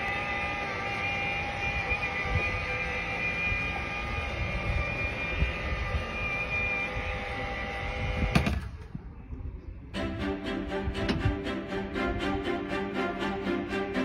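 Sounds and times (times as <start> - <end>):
mechanical whine: 0.0 - 14.0
wind rumble on microphone: 3.4 - 10.0, 10.6 - 12.3.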